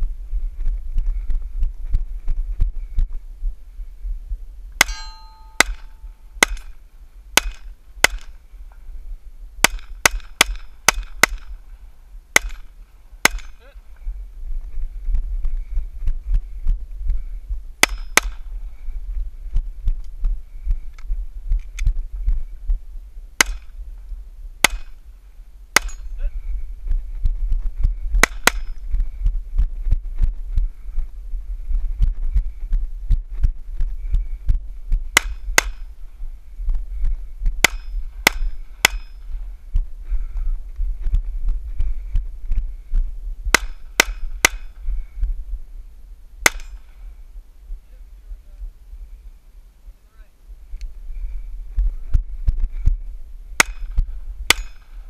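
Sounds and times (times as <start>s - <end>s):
wind and movement thudding on microphone: 0.0s - 55.0s
pistol shots: 12.4s - 13.6s, 46.4s - 46.9s, 54.5s - 54.9s.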